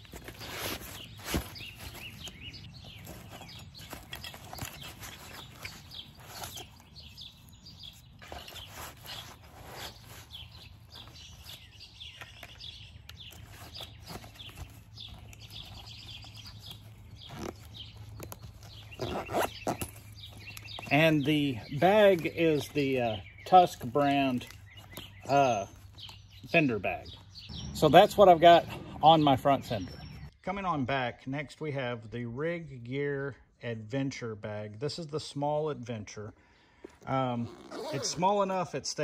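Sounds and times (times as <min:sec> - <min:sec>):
fabric bag rustling and scraping: 0:00.0 - 0:21.1
birds chirping: 0:00.0 - 0:39.0
zipper closing: 0:08.2 - 0:11.6, 0:15.4 - 0:20.9, 0:37.4 - 0:38.2.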